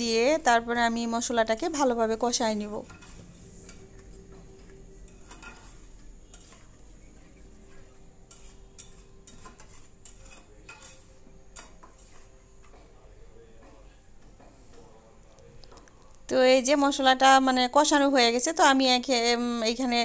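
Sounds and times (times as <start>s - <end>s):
metal spatula scraping a pan: 1.2s - 13.0s.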